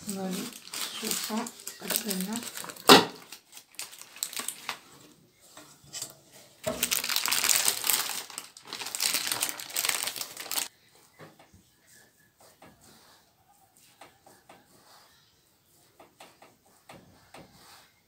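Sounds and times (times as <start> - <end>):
parchment paper crinkling: 0.0 - 5.6, 6.6 - 10.7.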